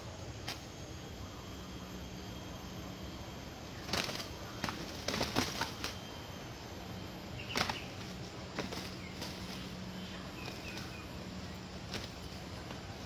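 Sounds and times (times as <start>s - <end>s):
roosters wing flapping and scuffling: 3.7s - 6.1s, 7.4s - 13.0s.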